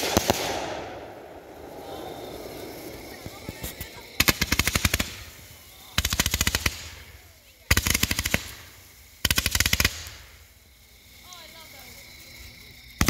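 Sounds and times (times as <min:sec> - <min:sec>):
firework cake rapid bangs: 0:00.0 - 0:10.4.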